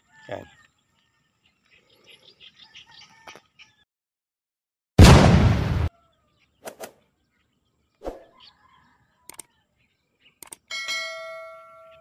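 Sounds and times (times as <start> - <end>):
mouse-click sound effects: 9.3 - 9.5, 10.4 - 10.6.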